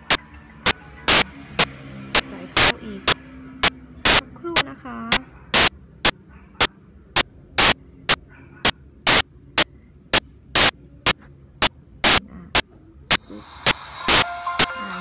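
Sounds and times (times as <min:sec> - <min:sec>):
buzzing radio interference bursts: 0:04.0 - 0:04.2, 0:07.6 - 0:08.2, 0:09.1 - 0:09.3.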